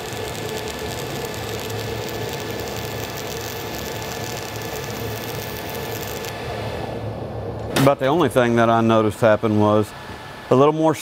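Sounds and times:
welding arc crackling: 0:00.0 - 0:06.5.

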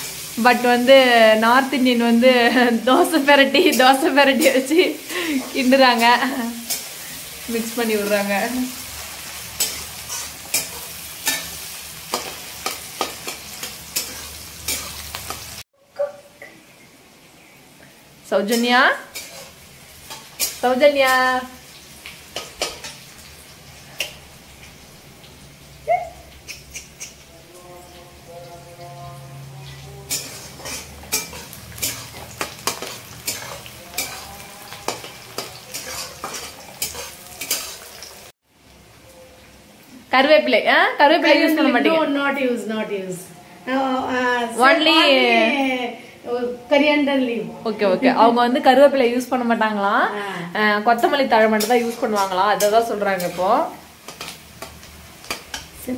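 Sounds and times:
onions sizzling in hot oil: 0:00.0 - 0:15.6, 0:16.7 - 0:42.8, 0:48.1 - 0:55.9
metal spatula scraping a pan: 0:03.7 - 0:15.6, 0:18.4 - 0:21.5, 0:22.2 - 0:23.0, 0:26.4 - 0:27.3, 0:28.8 - 0:38.3, 0:51.0 - 0:55.9.

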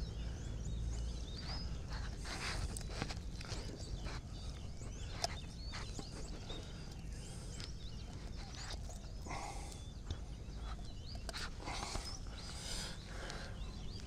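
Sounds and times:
small birds chirping: 0:00.0 - 0:14.0
rustle: 0:01.3 - 0:04.3.

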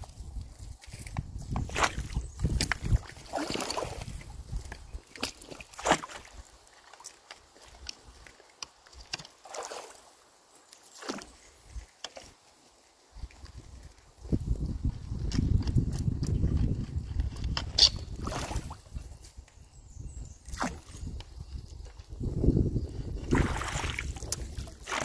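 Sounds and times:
water sloshing and splashing: 0:00.9 - 0:12.4, 0:14.9 - 0:19.1, 0:20.4 - 0:21.3, 0:23.1 - 0:25.0.

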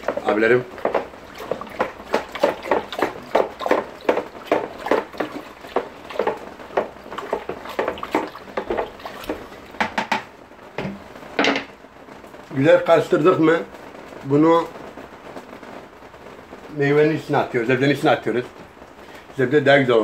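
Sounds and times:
stick scraping bucket: 0:00.0 - 0:10.0
water sloshing in bucket: 0:00.0 - 0:10.2.

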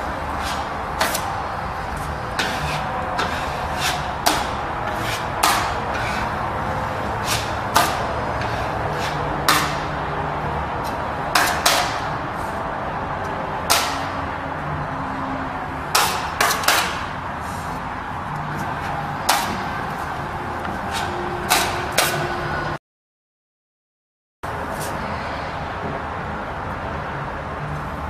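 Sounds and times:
putty knife scraping drywall: 0:00.2 - 0:10.0, 0:10.8 - 0:12.6.

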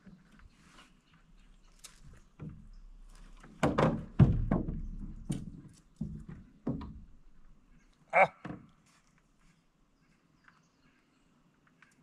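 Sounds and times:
dull knocks on a boat: 0:03.6 - 0:07.1.

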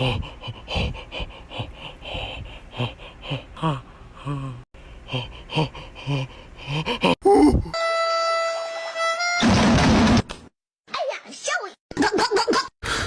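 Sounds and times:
person gasping breathily: 0:00.0 - 0:07.8.

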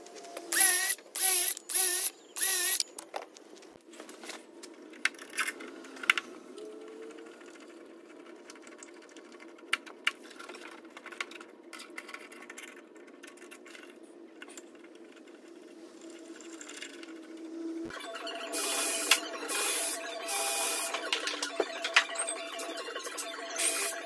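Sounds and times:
low mechanical motor hum: 0:04.5 - 0:08.6.

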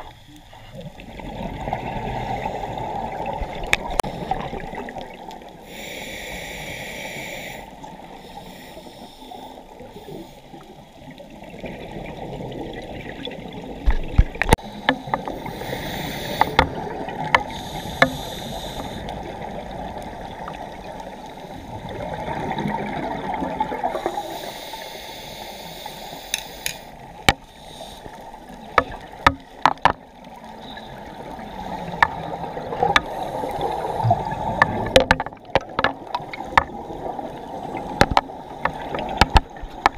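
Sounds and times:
exhaled air bubbling: 0:00.6 - 0:06.0, 0:10.6 - 0:24.3, 0:28.2 - 0:39.9
diver breathing underwater: 0:05.6 - 0:10.7, 0:14.6 - 0:19.6, 0:23.8 - 0:29.0, 0:30.6 - 0:35.0
sharp clicks and knocks: 0:28.8 - 0:30.0, 0:34.6 - 0:36.8, 0:38.0 - 0:39.9.

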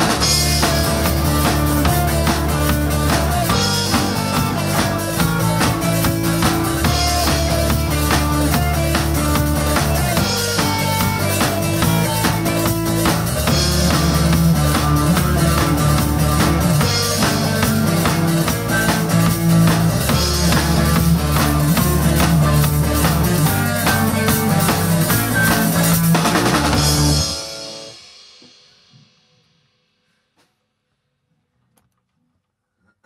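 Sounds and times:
rock band playing live: 0:00.0 - 0:28.0.

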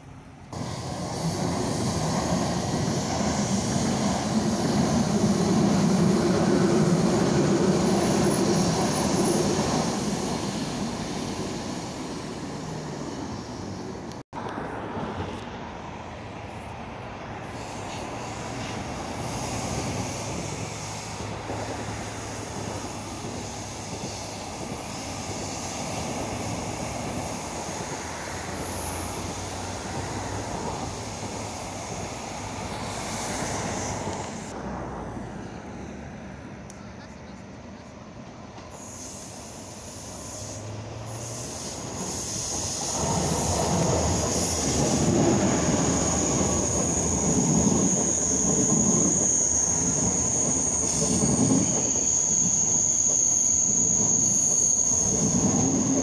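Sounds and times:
bus engine driving by: 0:00.0 - 0:52.5
train rolling on tracks: 0:00.0 - 0:56.0.

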